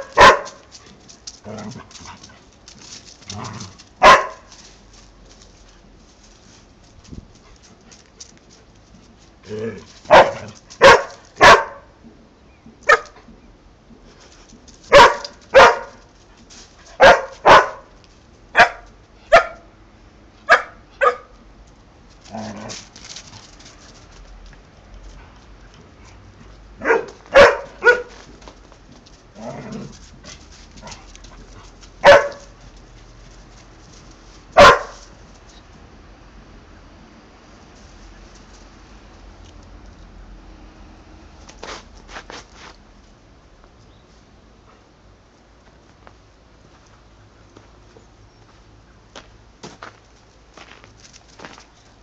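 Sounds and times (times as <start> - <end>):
dog barking: 0.0 - 0.6, 4.0 - 4.5, 10.1 - 11.9, 12.9 - 13.2, 14.9 - 16.0, 17.0 - 17.9, 18.6 - 19.7, 20.5 - 21.4, 26.8 - 28.2, 32.0 - 32.6, 34.6 - 35.1.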